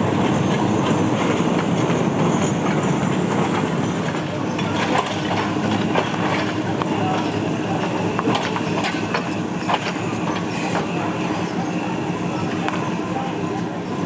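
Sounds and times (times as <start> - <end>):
train engine rumble: 0.0 - 14.0
people's voices: 3.9 - 14.0.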